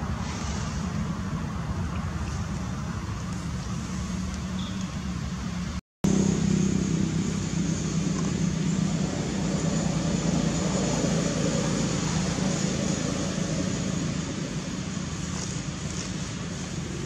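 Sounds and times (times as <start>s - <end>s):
hiss: 0.0s - 1.3s
low engine-like hum: 0.0s - 17.0s.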